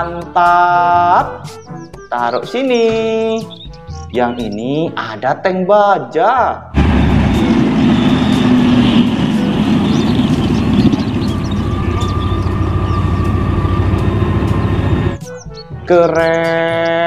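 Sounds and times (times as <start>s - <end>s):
tank engine running: 6.8s - 15.2s.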